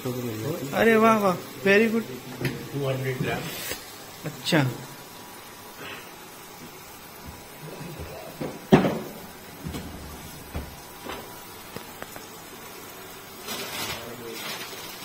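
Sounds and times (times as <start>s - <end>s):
kitchen knocks and clunks: 2.3s - 3.5s, 7.2s - 11.4s.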